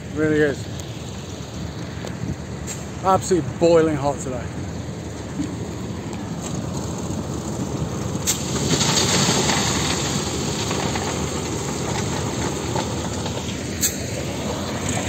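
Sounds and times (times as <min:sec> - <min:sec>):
diesel loader engine running: 0:00.0 - 0:15.0.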